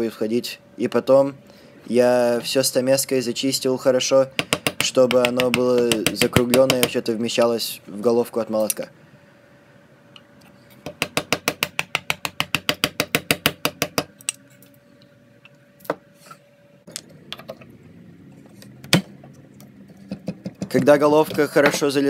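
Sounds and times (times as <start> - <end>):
chisel tapping on wood: 4.4 - 7.0, 10.8 - 14.1.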